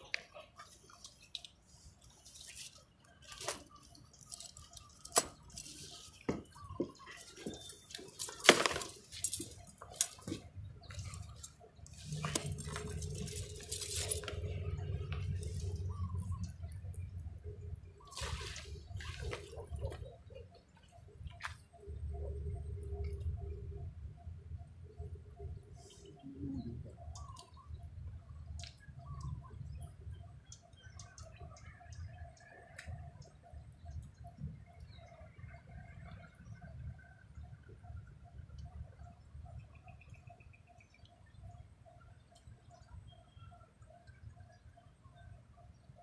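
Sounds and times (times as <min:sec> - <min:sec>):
water splashes and drips: 0:00.0 - 0:21.7
low steady hum: 0:00.0 - 0:46.0.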